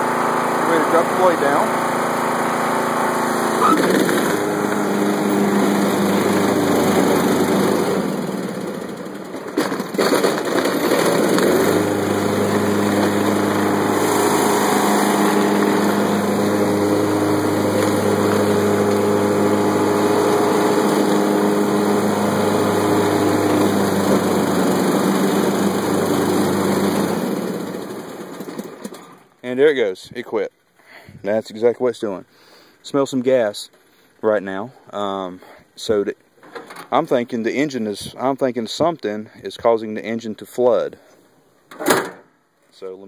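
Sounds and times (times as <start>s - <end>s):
lawn tractor engine running: 0.0s - 29.3s
sharp clunks: 41.7s - 42.3s.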